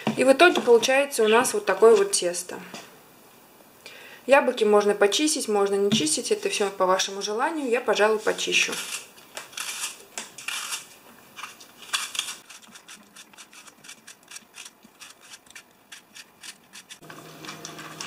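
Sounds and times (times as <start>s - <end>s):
knife scraping apple peel: 8.1s - 18.0s
knife crunching through apple: 8.6s - 18.0s.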